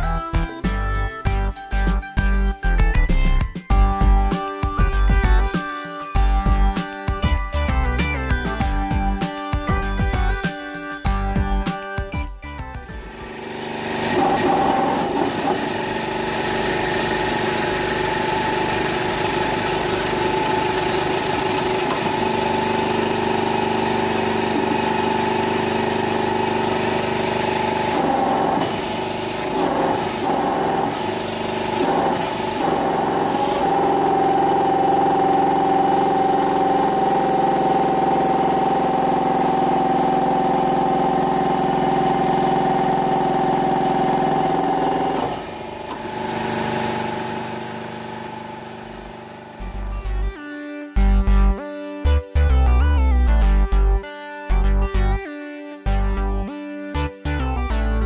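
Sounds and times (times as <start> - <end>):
hydraulic pump motor whine: 12.6 - 50.2.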